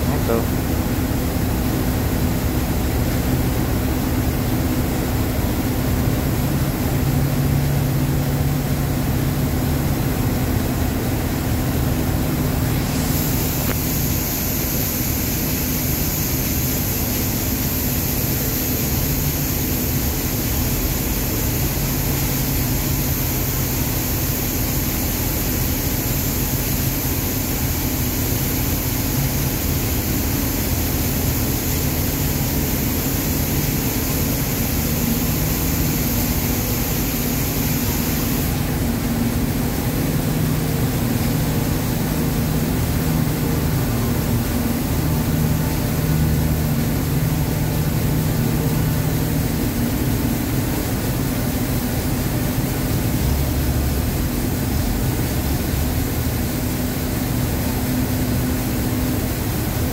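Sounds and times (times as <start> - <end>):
high hiss: 12.6 - 39.0
heavy diesel engine droning: 52.0 - 57.6.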